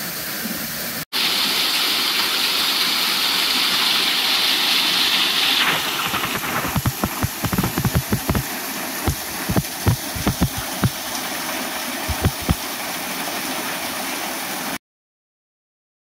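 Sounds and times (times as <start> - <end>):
waterfall splashing: 1.2 - 14.8
low thumps: 6.7 - 8.4, 9.1 - 11.0, 12.1 - 12.6.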